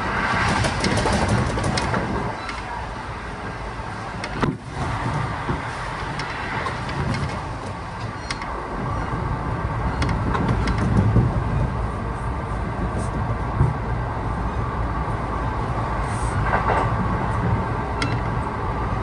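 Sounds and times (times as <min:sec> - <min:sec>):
train interior rumble: 0:00.0 - 0:19.0.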